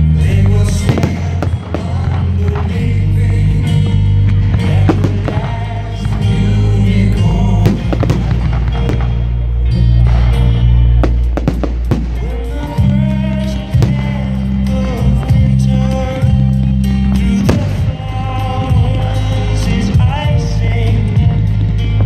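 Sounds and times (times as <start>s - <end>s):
loud music with heavy bass: 0.0s - 22.0s
fireworks bursting and crackling: 0.4s - 15.6s, 17.1s - 20.1s
sharp bangs: 7.7s - 9.3s, 11.0s - 12.8s.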